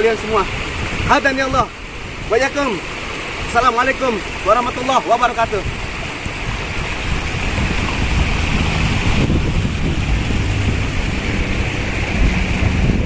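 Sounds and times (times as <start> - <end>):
wind buffeting microphone: 0.0 - 2.5, 5.4 - 13.0
stream running over rocks: 0.0 - 13.0.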